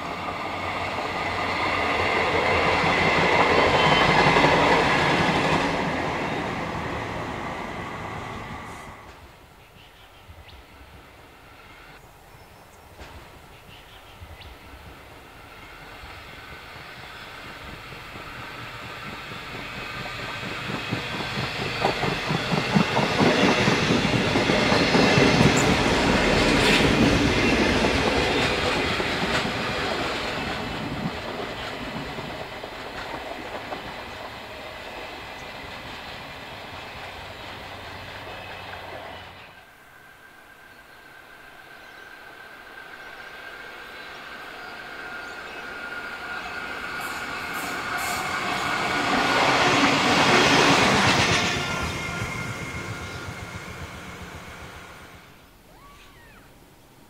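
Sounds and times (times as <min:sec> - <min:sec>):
diesel train engine passing: 0:00.0 - 0:12.2, 0:12.9 - 0:55.5
wheels clacking over rail joints: 0:17.9 - 0:34.4.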